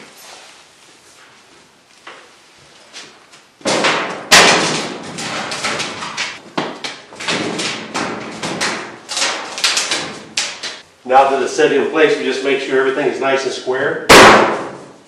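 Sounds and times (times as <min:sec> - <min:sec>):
metal cabinet thud: 0:14.1 - 0:15.0.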